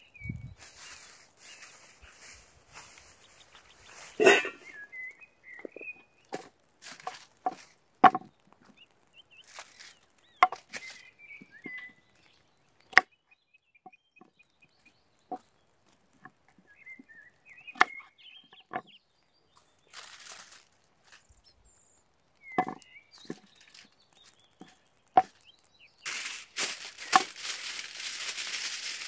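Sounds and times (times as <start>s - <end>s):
faint bird calls: 0.0s - 6.4s.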